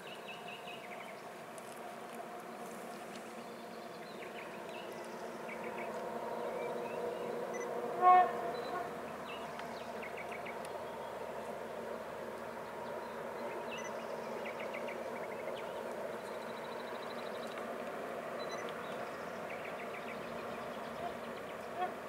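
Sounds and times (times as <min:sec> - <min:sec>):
diesel locomotive engine drone: 0:00.0 - 0:22.0
train horn toot: 0:06.5 - 0:09.0.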